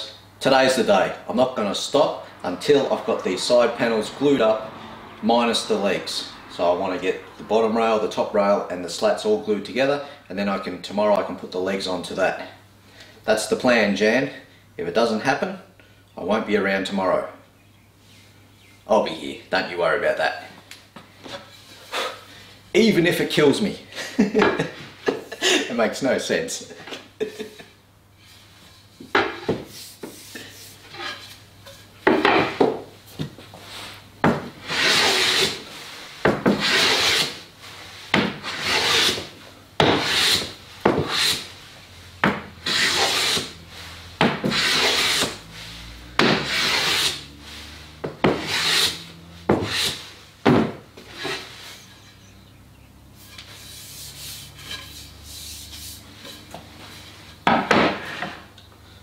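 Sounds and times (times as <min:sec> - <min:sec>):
hand plane swishing on wood: 0:34.6 - 0:37.4, 0:38.1 - 0:50.2, 0:51.0 - 0:52.3, 0:53.2 - 0:58.5.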